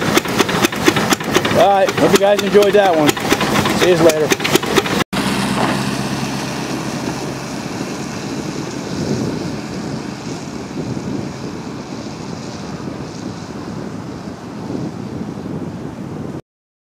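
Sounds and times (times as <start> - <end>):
car engine running: 0.0 - 13.6
wind noise on microphone: 0.0 - 16.4.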